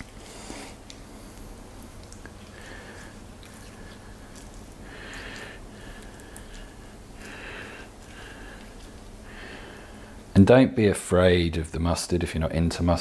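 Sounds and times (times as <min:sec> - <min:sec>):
wet squishing hand strokes: 0:00.0 - 0:10.3
low steady hum: 0:00.0 - 0:13.0.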